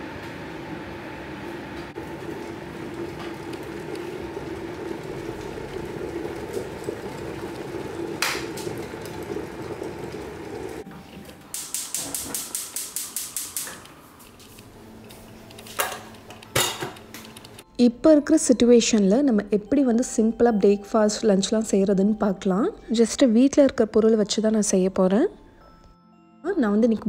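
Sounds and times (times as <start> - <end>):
kettle boiling and bubbling: 0.0 - 17.6.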